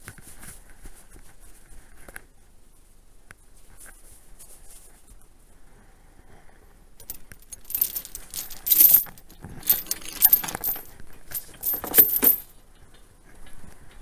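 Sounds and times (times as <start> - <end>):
metal jangling and clanking: 7.0 - 12.5.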